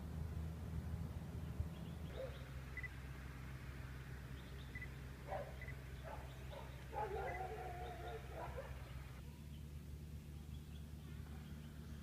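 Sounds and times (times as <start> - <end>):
faint high bird chirps: 4.3 - 9.7.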